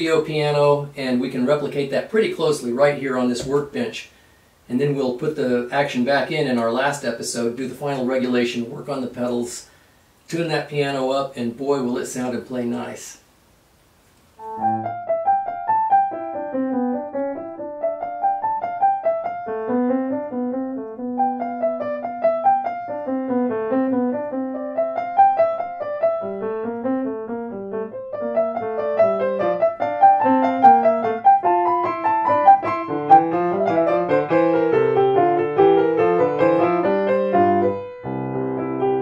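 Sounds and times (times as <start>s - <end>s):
solo piano arpeggios: 14.4s - 39.0s.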